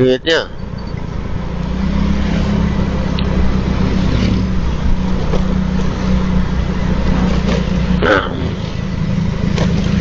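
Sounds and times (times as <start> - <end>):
wind and road noise: 0.0 - 10.0.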